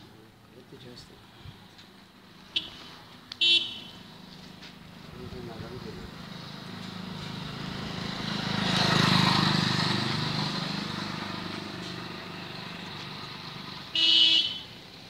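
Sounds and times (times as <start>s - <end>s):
vehicle engine passing: 4.1s - 13.9s.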